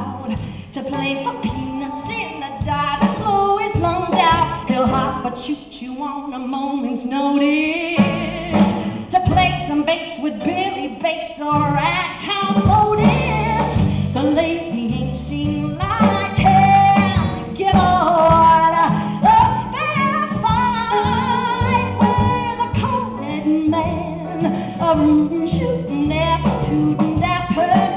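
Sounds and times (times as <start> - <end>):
woman singing: 0.0 - 27.9
instrumental accompaniment: 7.4 - 27.9.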